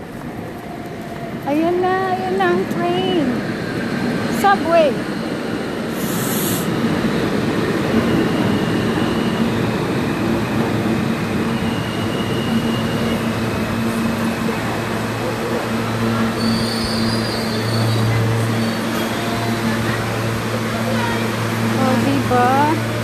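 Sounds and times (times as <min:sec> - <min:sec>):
subway train rumbling: 0:00.0 - 0:23.0
high-pitched wheel squeals: 0:16.2 - 0:19.6.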